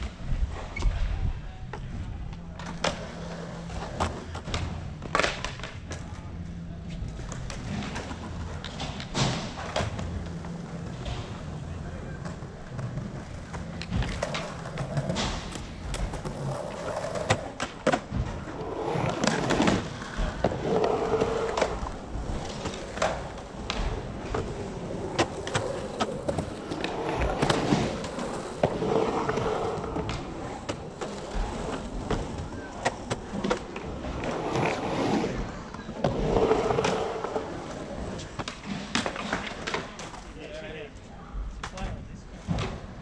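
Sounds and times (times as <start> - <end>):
skateboard wheels rolling on concrete: 0.0 - 43.0
skateboard clacking on concrete: 1.7 - 6.1, 12.1 - 33.8.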